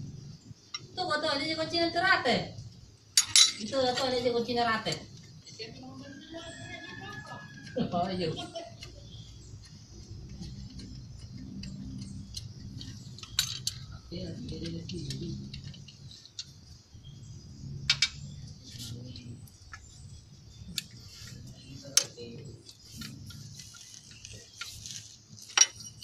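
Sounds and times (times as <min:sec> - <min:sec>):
metal tools clinking on engine: 0:03.1 - 0:04.2, 0:09.6 - 0:16.7, 0:25.4 - 0:26.0.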